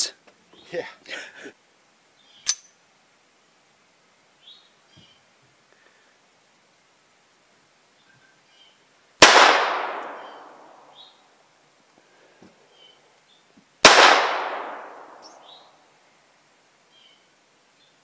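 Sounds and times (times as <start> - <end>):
faint bird chirps: 2.1 - 2.8, 4.4 - 5.3, 7.9 - 8.9, 10.2 - 11.3, 12.6 - 13.6, 15.2 - 15.8
gunshots echoing: 9.2 - 10.8, 13.8 - 15.6.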